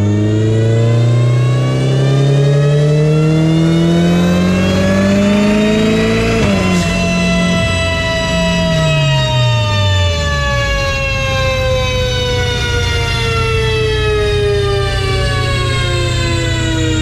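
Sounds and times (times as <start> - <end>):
drivetrain and rollers whining: 0.0 - 17.0
car engine revs dropping: 0.6 - 10.1
low rumble: 5.7 - 17.0.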